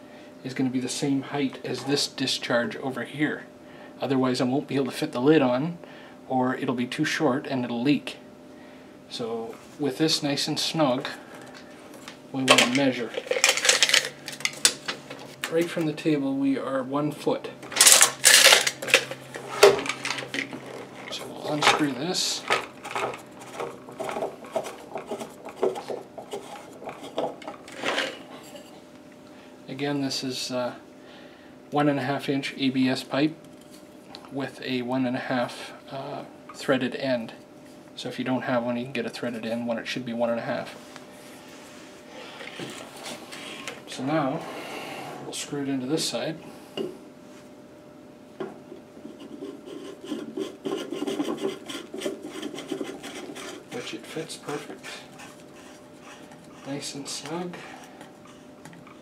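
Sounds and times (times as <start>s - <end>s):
plastic pipe scraping and knocking: 19.7s - 27.9s
plastic pipe threads rasping: 19.8s - 27.8s, 49.0s - 59.0s.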